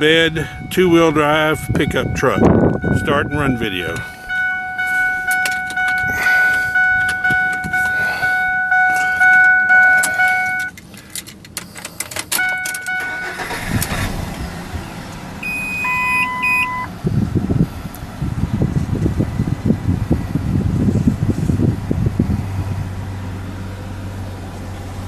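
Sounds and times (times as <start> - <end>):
in-cab warning chime: 0.0 - 10.7, 12.4 - 14.0, 15.4 - 16.9
engine idling: 0.0 - 20.9
key clicks: 4.8 - 8.0, 8.9 - 12.9
engine starter cranking: 9.8 - 14.8.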